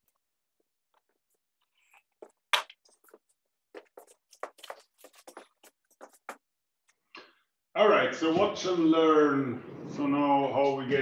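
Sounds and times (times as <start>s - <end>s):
knocks and scuffs: 2.1s - 6.4s.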